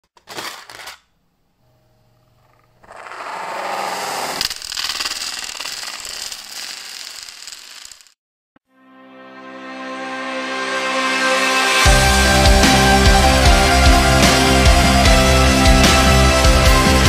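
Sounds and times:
plastic pieces clattering on floor: 0:00.1 - 0:01.1, 0:04.4 - 0:08.2.

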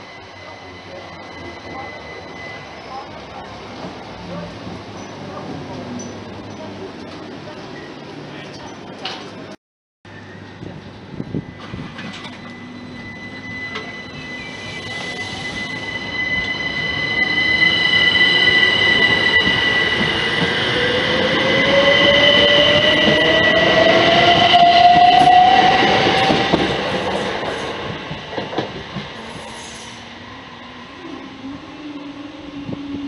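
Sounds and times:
train high whine: 0:00.0 - 0:08.4, 0:10.1 - 0:33.0
rising whine: 0:10.2 - 0:27.0
train wheels rumbling: 0:10.4 - 0:30.3.

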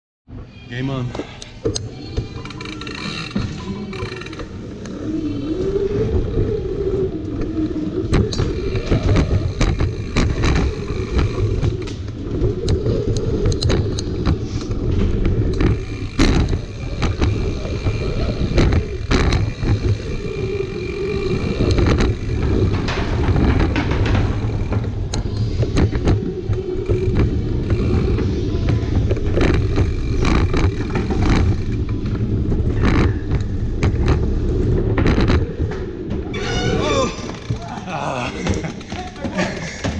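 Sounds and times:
whirring: 0:01.4 - 0:38.6
bike tyre rumble: 0:01.9 - 0:39.9
wheels knocking on wooden boards: 0:07.4 - 0:37.7.

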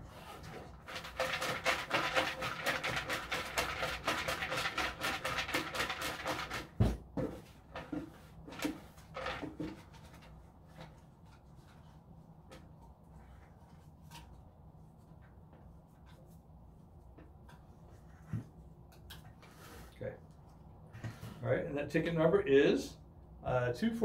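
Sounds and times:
raffle tickets rattling in bucket: 0:00.8 - 0:06.8.

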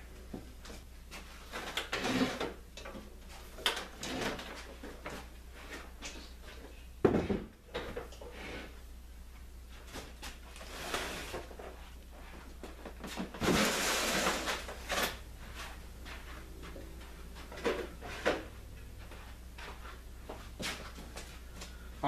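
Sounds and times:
heavy box thump and scrape: 0:13.2 - 0:14.6.

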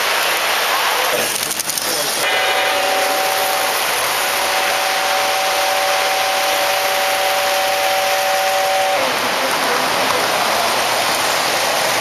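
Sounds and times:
toy trains rolling on track: 0:00.0 - 0:12.0
model train horn chord: 0:02.2 - 0:09.3.

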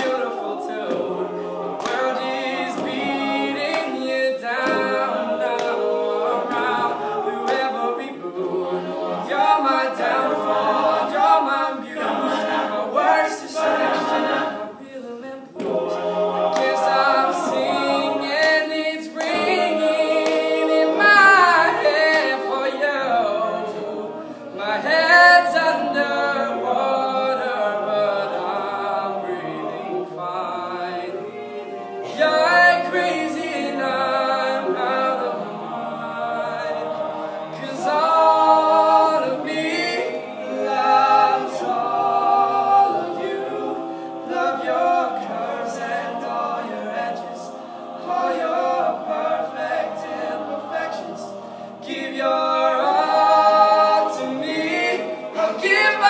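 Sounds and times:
male a cappella group singing: 0:00.0 - 0:56.0.

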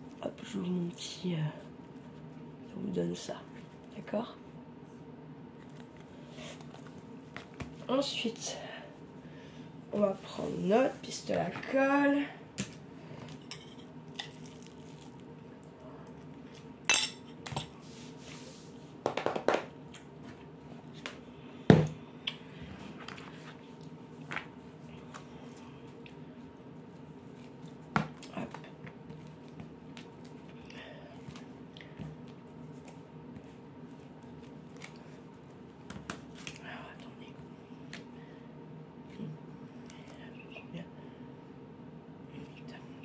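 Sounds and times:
faint steady hum: 0:00.0 - 0:43.0
objects knocking on plastic mat: 0:19.0 - 0:19.7.

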